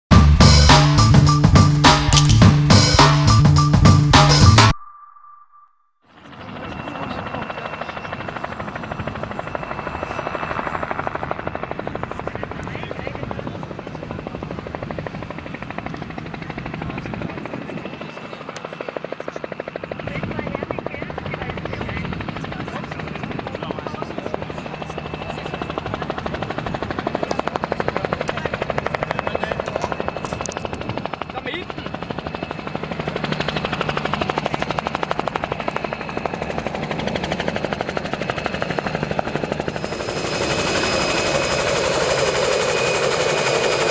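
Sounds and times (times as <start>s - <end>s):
helicopter rotor beating: 0.1s - 4.7s, 6.1s - 43.9s
turbine engine whine: 0.1s - 43.9s
turbine whine: 28.0s - 43.9s.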